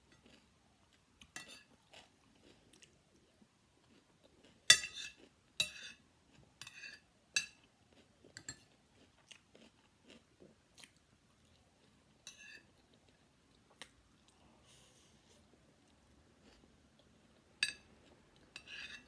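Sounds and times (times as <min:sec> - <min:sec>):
spoon scraping a ceramic plate: 0:06.6 - 0:07.5, 0:18.6 - 0:19.0
chewing crunchy food: 0:07.6 - 0:12.0.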